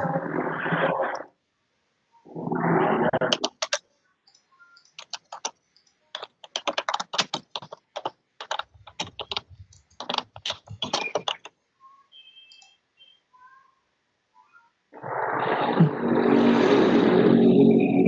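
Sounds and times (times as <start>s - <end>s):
keyboard typing: 3.2s - 11.6s
noise rush on microphone: 15.0s - 18.0s.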